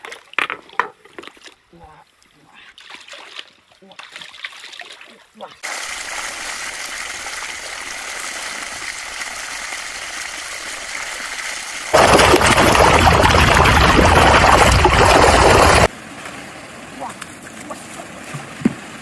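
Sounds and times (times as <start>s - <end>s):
water rushing: 5.6s - 15.9s
fish thrashing in shallow water: 12.0s - 15.9s.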